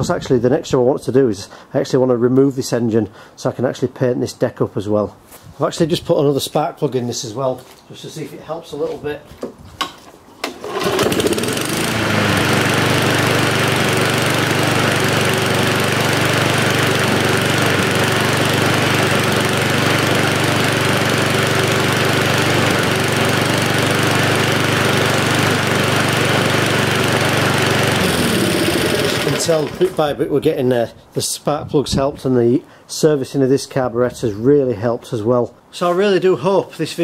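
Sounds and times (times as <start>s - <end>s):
lawnmower engine starting and running: 10.4s - 30.2s.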